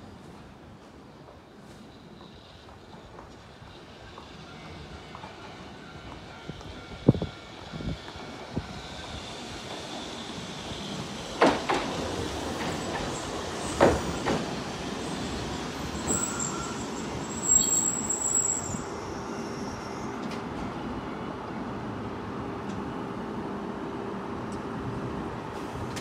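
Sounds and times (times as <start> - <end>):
tram running on street track: 0.0 - 26.0
high metallic squeal: 15.0 - 20.2.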